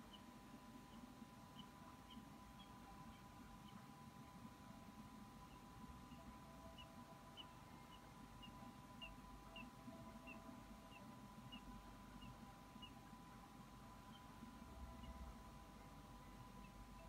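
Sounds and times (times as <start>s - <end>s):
faint electronic hum: 0.0s - 17.0s
bird chirping: 5.4s - 13.2s, 13.9s - 17.0s.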